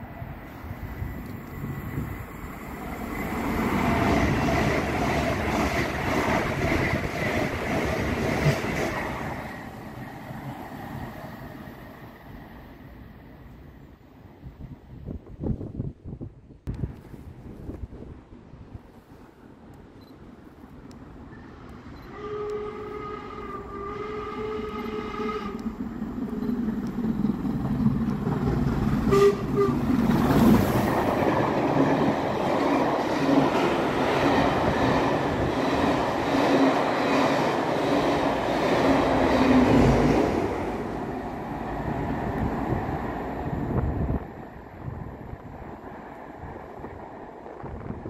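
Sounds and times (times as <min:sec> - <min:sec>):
train passing with rhythmic beat: 0:00.0 - 0:48.0
steam locomotive whistle: 0:22.0 - 0:25.7, 0:29.1 - 0:29.9.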